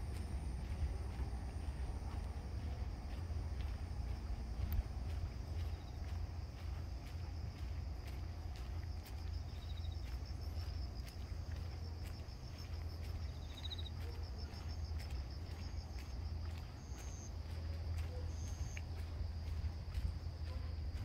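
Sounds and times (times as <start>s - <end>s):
low rumble: 0.0s - 13.4s
insects trilling: 0.0s - 21.0s
light footstep clicks: 0.0s - 21.0s.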